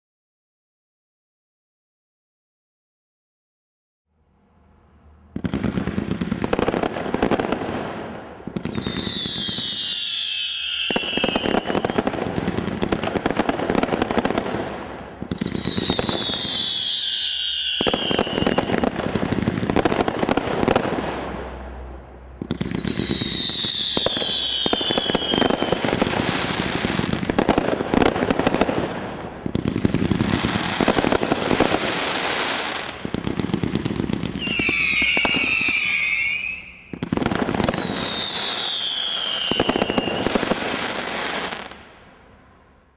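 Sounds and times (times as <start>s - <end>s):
firework cake firing volleys: 5.3s - 21.8s, 22.4s - 41.7s
high falling whistle: 8.8s - 12.0s, 15.3s - 18.7s, 22.7s - 25.8s, 34.4s - 40.3s.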